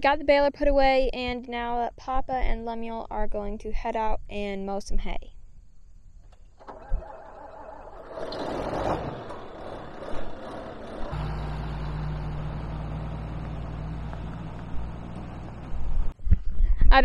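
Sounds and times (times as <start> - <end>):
tractor diesel engine running: 6.4 - 16.2.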